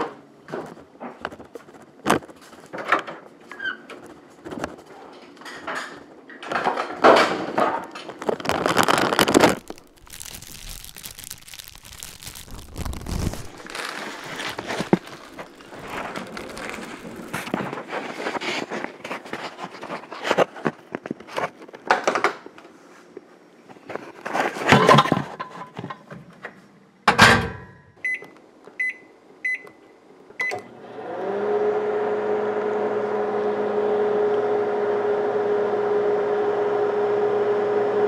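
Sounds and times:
plastic wrapper crinkling: 7.8 - 21.9.

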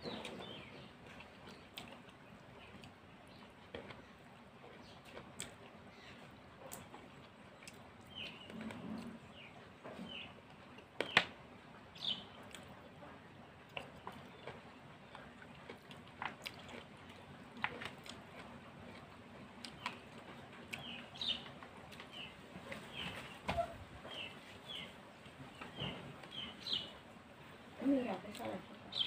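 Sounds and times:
chewing and lip smacks: 0.7 - 8.5, 13.6 - 21.0.

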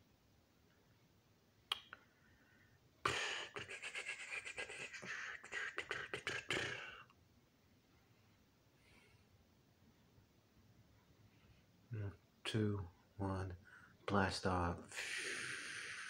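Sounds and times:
man making mouth noises: 3.0 - 7.1, 11.9 - 12.6, 14.8 - 16.0.

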